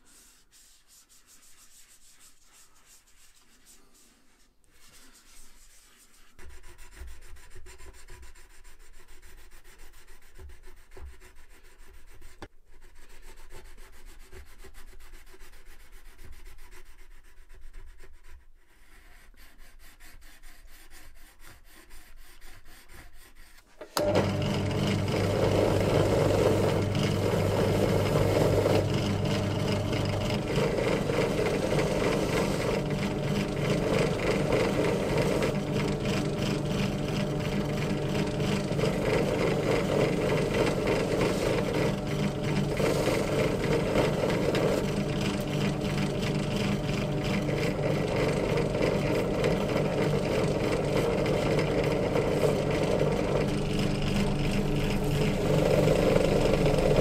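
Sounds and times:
drill press running: 0:23.8 - 0:57.0.

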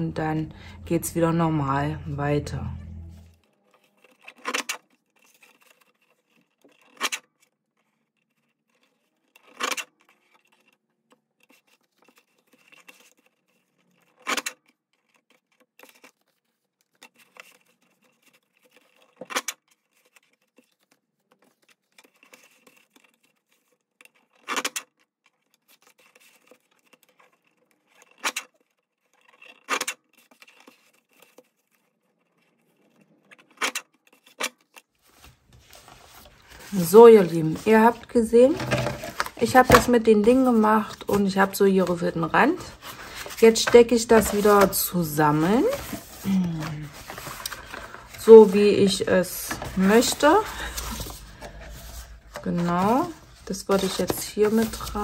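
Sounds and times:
paper rustling: 0:03.2 - 0:55.0.

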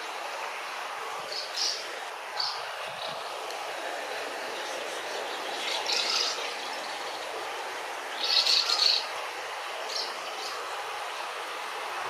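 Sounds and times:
background hiss: 0:00.0 - 0:12.0
house martins twittering: 0:04.9 - 0:07.2, 0:08.2 - 0:09.1.

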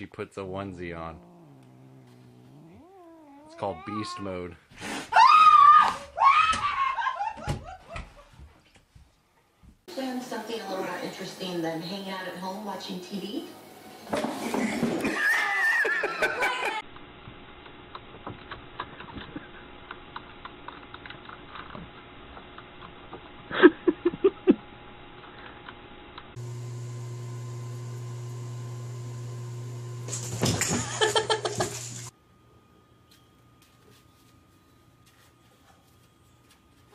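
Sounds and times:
steady low hum: 0:00.3 - 0:03.8
voices: 0:09.9 - 0:13.6
burst of laughter: 0:14.4 - 0:16.8, 0:30.6 - 0:31.8.

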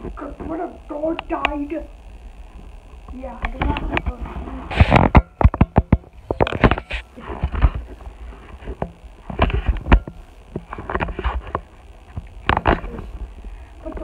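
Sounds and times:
microphone handling knocks: 0:03.4 - 0:12.9.

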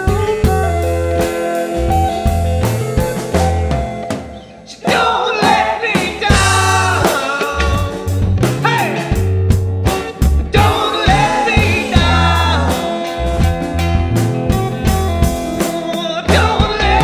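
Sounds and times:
bass guitar: 0:00.0 - 0:04.4, 0:05.5 - 0:17.0
electric guitar: 0:00.0 - 0:04.6, 0:06.3 - 0:17.0
person singing: 0:04.7 - 0:08.2, 0:10.5 - 0:13.3, 0:15.6 - 0:17.0.

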